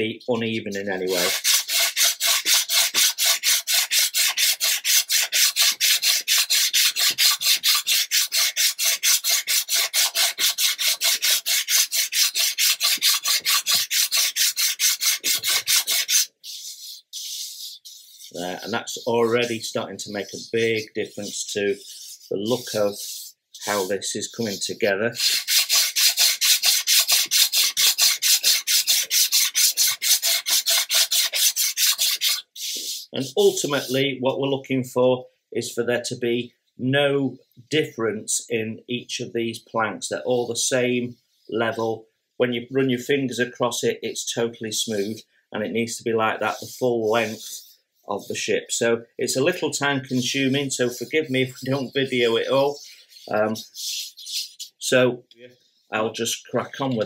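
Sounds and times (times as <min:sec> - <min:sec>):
sandpaper scraping on wood: 0:00.7 - 0:34.0, 0:44.8 - 0:45.2, 0:46.4 - 0:48.5, 0:49.5 - 0:54.8.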